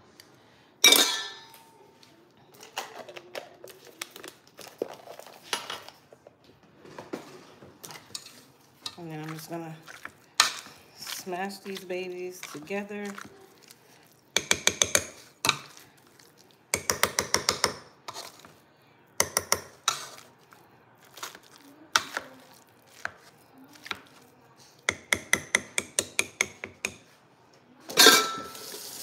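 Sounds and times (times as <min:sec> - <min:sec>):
potato masher clinking on metal pot: 0:14.4 - 0:15.7.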